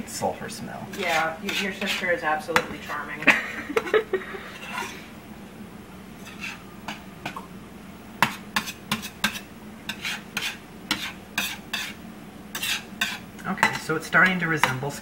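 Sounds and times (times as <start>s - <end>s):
fork scraping a metal pan: 0.9s - 3.1s, 4.5s - 5.1s, 6.2s - 7.4s, 8.2s - 14.8s.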